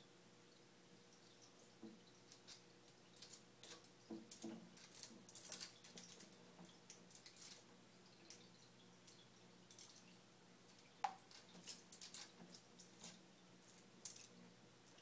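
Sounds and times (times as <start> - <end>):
faint steady hum: 0.0 - 15.0
water drips: 0.5 - 15.0
claws and shell scrabbling: 3.2 - 7.7, 10.7 - 15.0.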